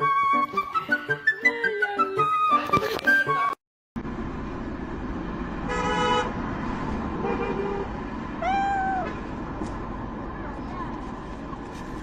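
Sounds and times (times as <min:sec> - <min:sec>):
street traffic hum: 0:00.0 - 0:12.0
car horn toot: 0:05.7 - 0:06.3
cat meowing: 0:08.4 - 0:09.1.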